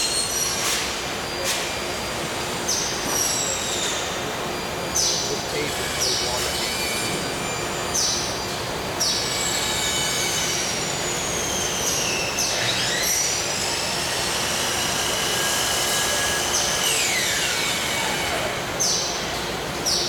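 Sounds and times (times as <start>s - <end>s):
workshop noise: 0.0s - 20.0s
power tool motor whines: 9.0s - 19.0s.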